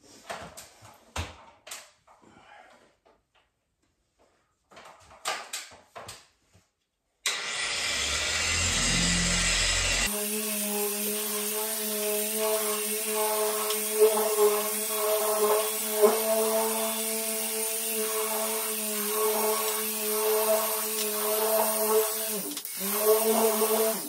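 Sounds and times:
polisher hissing and humming: 7.3 - 24.0.

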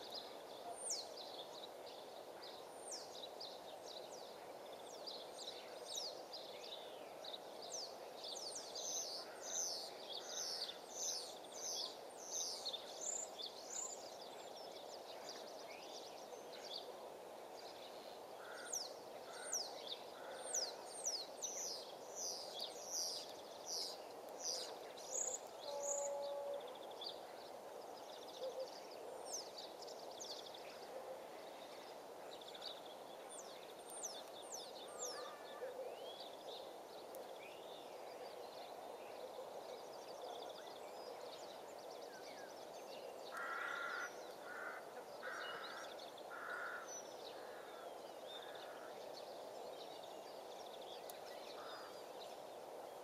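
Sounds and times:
low background hiss: 0.0 - 53.0
wild birds chirping: 0.0 - 53.0.

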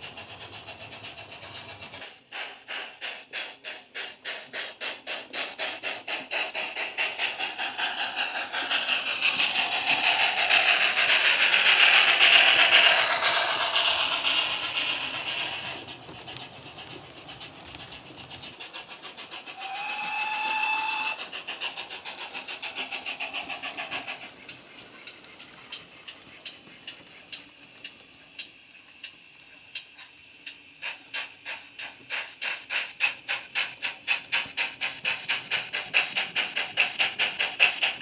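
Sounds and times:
rhythmic steam exhaust beats: 0.0 - 38.0
train whistle: 19.6 - 21.2.

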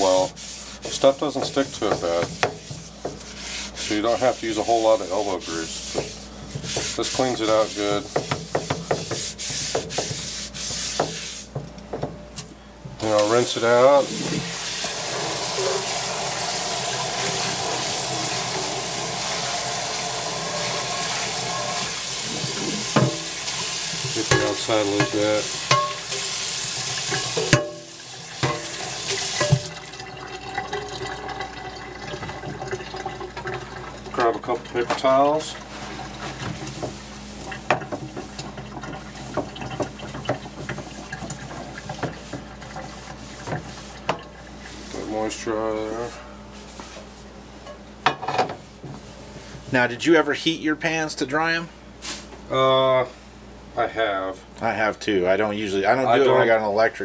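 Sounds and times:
faucet running into a skillet: 13.0 - 36.8, 37.4 - 44.8.

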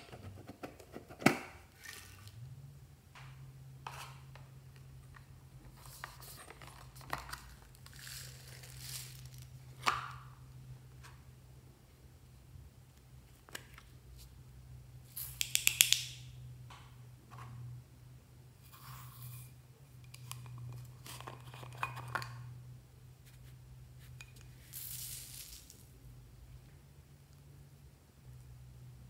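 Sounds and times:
faint low hum: 16.1 - 29.0.

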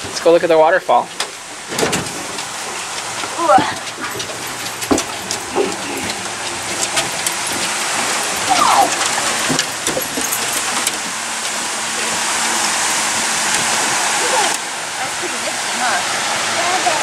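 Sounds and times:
waterfall rushing: 0.0 - 17.0
knocks on boat deck: 1.7 - 2.4.

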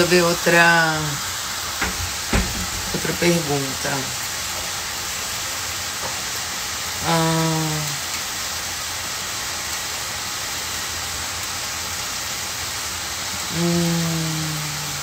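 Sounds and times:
food sizzling in a pan: 0.0 - 15.0
person humming: 7.0 - 8.0, 13.5 - 15.0.

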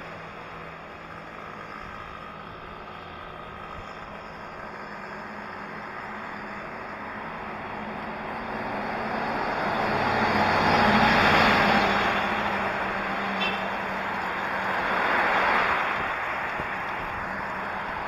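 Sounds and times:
road and wind noise: 0.0 - 18.0
truck passing: 0.0 - 18.0
car passing: 5.0 - 18.0.

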